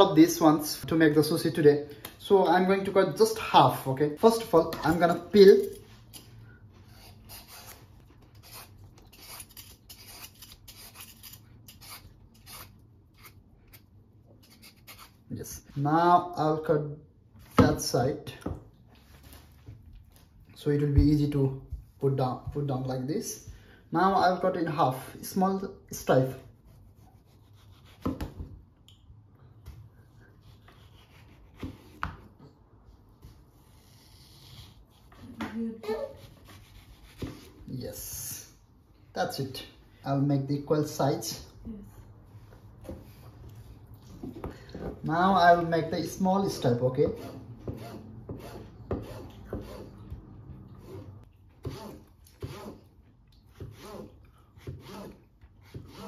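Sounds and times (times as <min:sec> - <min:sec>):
soft cutting and rubbing: 0:04.9 - 0:15.3, 0:26.4 - 0:28.4, 0:30.2 - 0:37.7
peeler scraping mango skin: 0:07.0 - 0:15.2.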